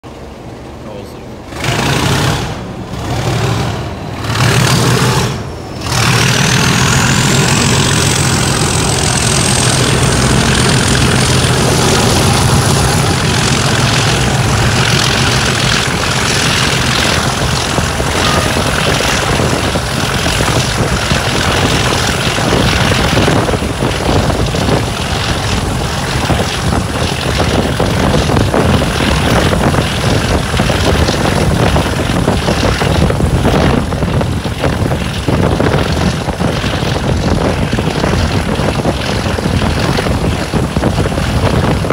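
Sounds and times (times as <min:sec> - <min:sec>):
diesel locomotive engine at full power: 0:00.0 - 0:41.9
turbocharger whistle: 0:10.2 - 0:20.6.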